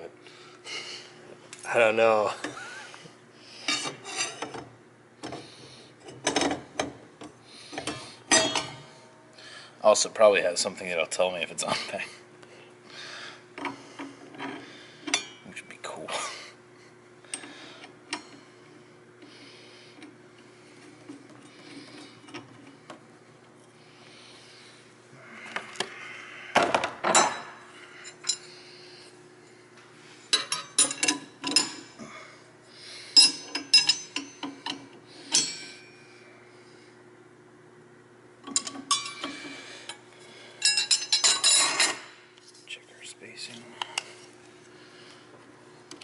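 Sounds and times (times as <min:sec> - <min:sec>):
metal parts clinking and rattling: 0:30.3 - 0:31.8, 0:40.6 - 0:42.0.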